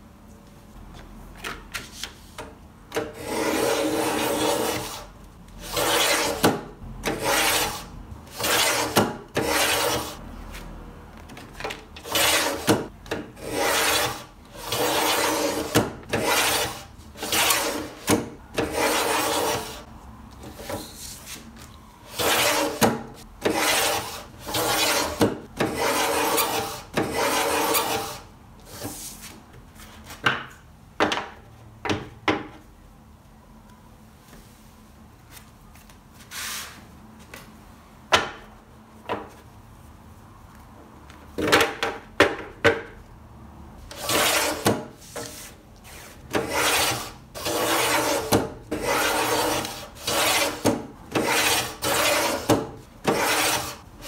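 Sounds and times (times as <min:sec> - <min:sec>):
paper trimmer rasping along rail: 0:03.2 - 0:10.2, 0:13.4 - 0:19.8, 0:22.1 - 0:28.2, 0:43.9 - 0:45.3, 0:46.3 - 0:53.8.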